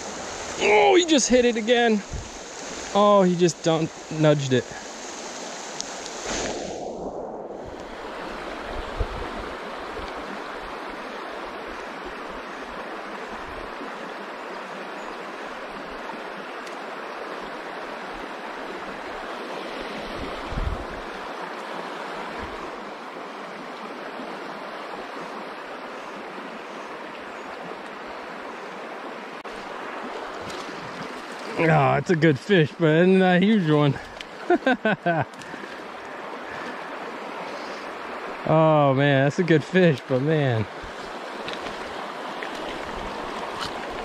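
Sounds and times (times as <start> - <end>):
creek rushing over rocks: 0.0 - 44.0.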